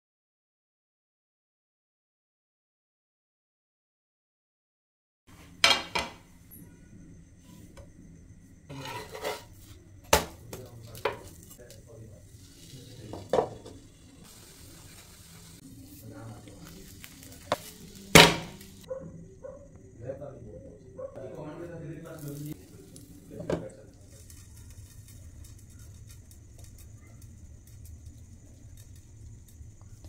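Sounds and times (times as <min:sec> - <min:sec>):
light sizzle of cooking: 0:05.3 - 0:18.9, 0:21.2 - 0:30.0.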